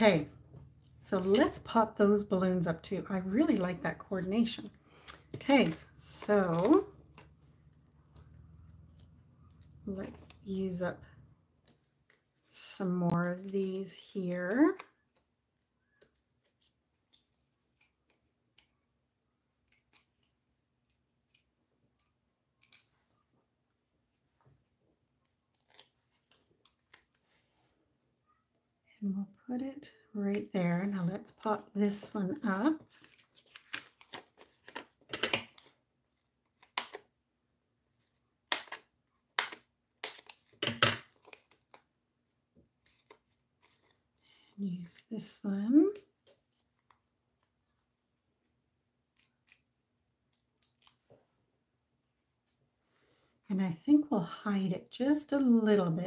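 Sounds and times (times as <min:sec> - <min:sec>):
paper rustling: 0:32.0 - 0:35.8.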